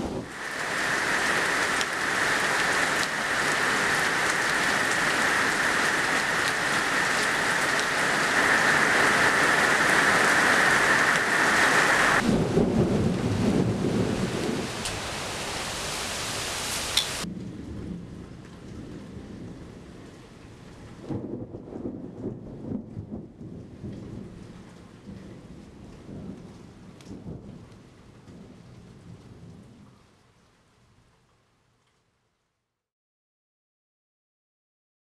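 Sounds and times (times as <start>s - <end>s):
thunder rumbling: 0.0s - 15.2s, 17.2s - 29.8s
heavy rain splashing: 0.0s - 30.7s.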